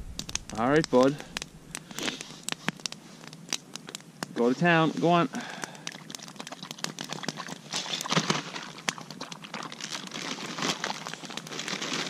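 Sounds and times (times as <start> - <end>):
campfire crackling: 0.0 - 12.0
plastic bag crinkling: 6.5 - 12.0.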